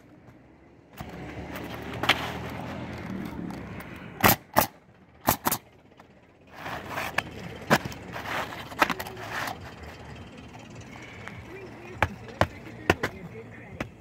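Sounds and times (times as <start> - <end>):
shingles rustling and scraping: 1.0 - 4.0, 5.4 - 10.2.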